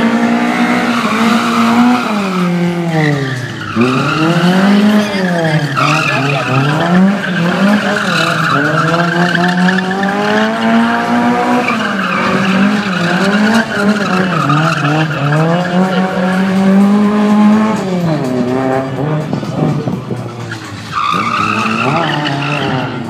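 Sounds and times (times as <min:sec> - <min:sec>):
car engine revving: 0:00.0 - 0:23.0
tyres skidding on tarmac: 0:00.0 - 0:23.0.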